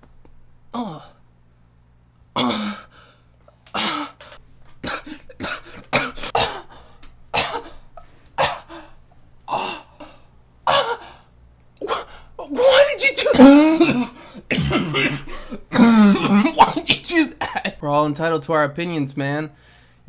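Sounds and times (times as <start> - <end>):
man coughing and gagging: 2.4 - 2.9, 3.7 - 11.2, 11.8 - 17.8.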